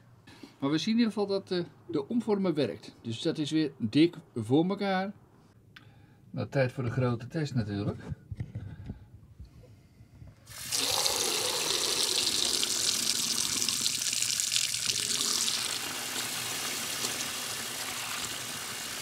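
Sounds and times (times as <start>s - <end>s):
tap water running into sink: 10.5s - 19.0s.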